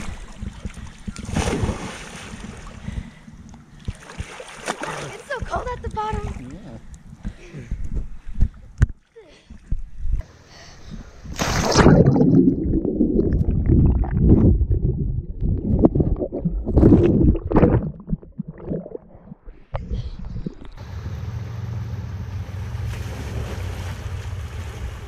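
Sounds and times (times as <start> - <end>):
underwater swimming strokes: 11.3 - 20.8.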